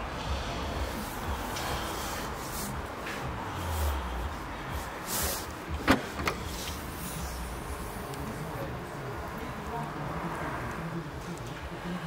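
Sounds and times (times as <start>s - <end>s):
car boot latch click: 5.8s - 6.8s.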